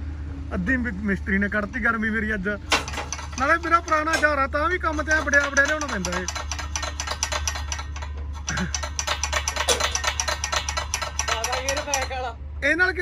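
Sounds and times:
tractor diesel engine clattering: 0:00.5 - 0:12.6.

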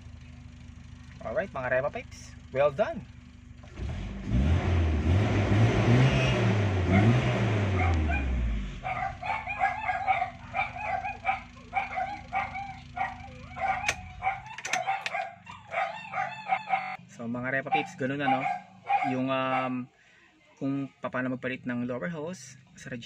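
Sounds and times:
car engine revving: 0:00.0 - 0:17.0
short repeated yelps: 0:08.9 - 0:17.0
sharp clicks: 0:13.8 - 0:15.3.

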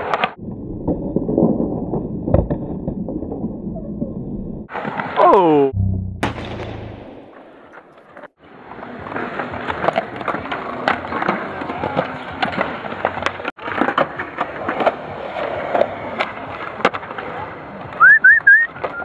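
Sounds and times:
skateboard wheels rolling on concrete: 0:00.0 - 0:05.2, 0:07.1 - 0:19.0
skateboards clacking on ground: 0:07.7 - 0:19.0.

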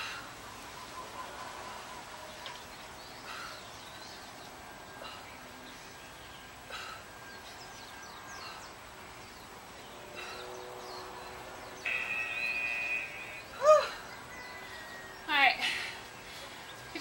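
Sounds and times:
birds calling: 0:00.0 - 0:17.0
outdoor background hiss: 0:00.0 - 0:17.0
rising-and-falling call: 0:10.3 - 0:15.4
held steady tone: 0:10.5 - 0:16.1.

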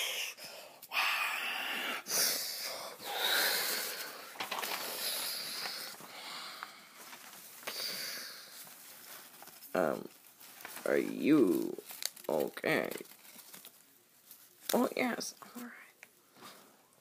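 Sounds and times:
child making mouth hissing sounds: 0:00.0 - 0:03.9
paper rustling: 0:04.0 - 0:15.2.

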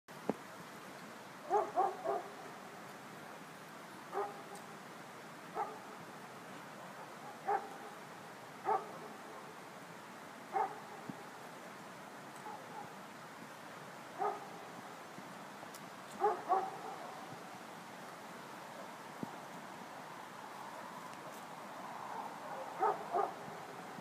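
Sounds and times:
animal barking: 0:01.5 - 0:02.3, 0:04.2 - 0:04.4, 0:07.4 - 0:07.8, 0:08.7 - 0:09.0, 0:10.5 - 0:10.8, 0:14.2 - 0:14.5, 0:16.2 - 0:17.1, 0:22.5 - 0:23.4.

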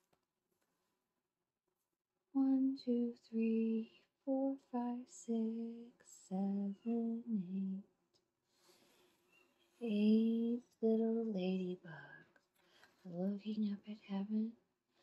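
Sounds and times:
woman chanting a sing-song count: 0:02.4 - 0:07.9, 0:09.8 - 0:12.3, 0:13.0 - 0:14.6.

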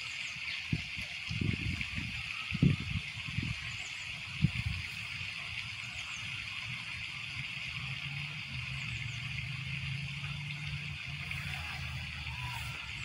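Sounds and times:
distant motor hum: 0:05.5 - 0:13.0.

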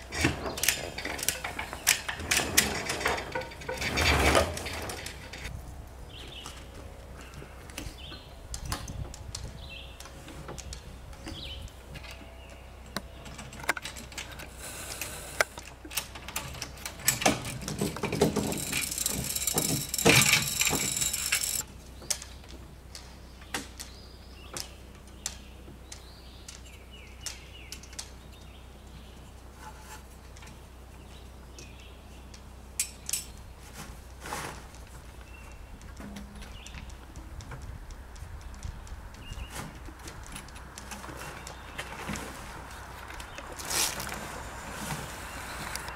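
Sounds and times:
rustling and scraping: 0:00.0 - 0:21.7, 0:29.2 - 0:31.6, 0:33.2 - 0:45.9
metal fittings clinking: 0:18.2 - 0:21.6.

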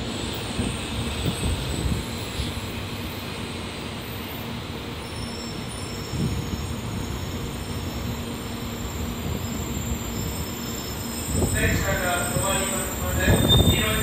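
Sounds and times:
train rolling and braking: 0:00.0 - 0:14.0.

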